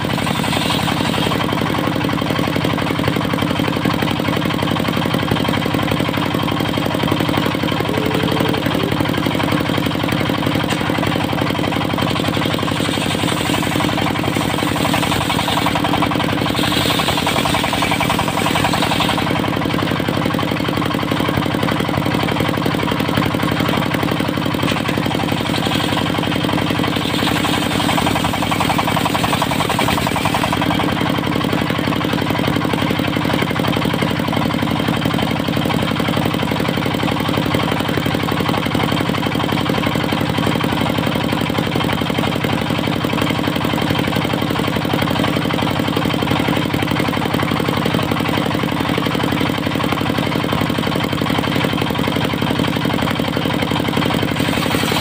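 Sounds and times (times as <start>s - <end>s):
saw blade ripping through log: 0.0s - 1.8s, 10.6s - 19.6s, 24.5s - 30.9s, 54.0s - 55.0s
diesel engine running: 0.0s - 55.0s.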